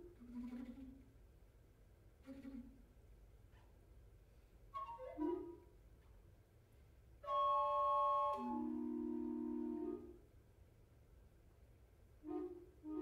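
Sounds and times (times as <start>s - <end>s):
recorder quintet playing: 7.2s - 10.2s, 12.2s - 13.0s.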